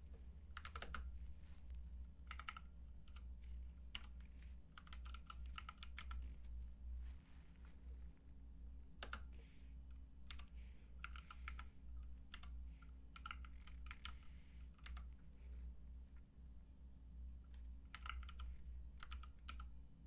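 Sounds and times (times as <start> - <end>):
low steady hum: 0.0 - 20.0
computer keyboard typing: 0.5 - 1.1, 2.2 - 6.3, 9.0 - 9.3, 10.3 - 15.2, 17.5 - 19.7.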